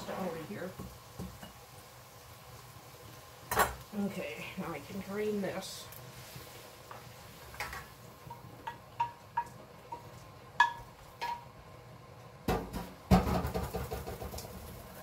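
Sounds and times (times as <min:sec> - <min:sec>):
skillet tapping metal colander: 0:07.6 - 0:11.6.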